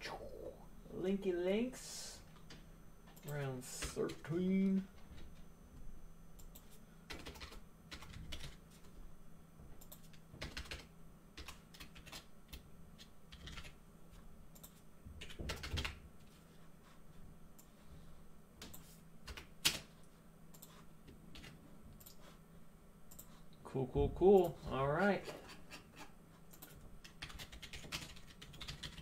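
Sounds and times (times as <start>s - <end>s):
faint steady hum: 0.0s - 29.0s
keyboard typing: 6.4s - 8.9s, 9.8s - 13.8s, 14.5s - 16.0s, 18.6s - 19.9s, 20.5s - 22.2s, 23.1s - 23.4s, 25.3s - 29.0s.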